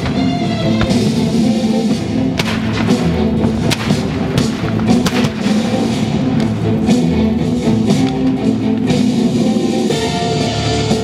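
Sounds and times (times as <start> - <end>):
background music with held tones: 0.0 - 11.0
cannon and gunfire shots: 2.3 - 6.2.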